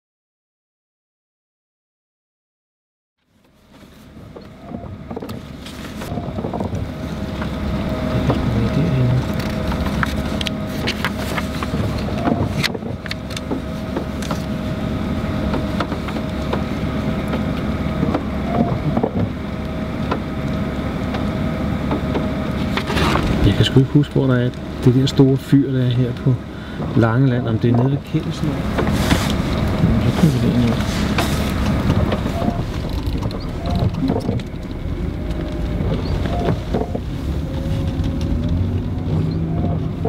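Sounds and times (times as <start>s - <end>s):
vehicle rumble from inside car: 3.2s - 40.0s
paper road atlas rustling: 5.4s - 6.2s, 6.9s - 14.6s, 27.7s - 39.1s.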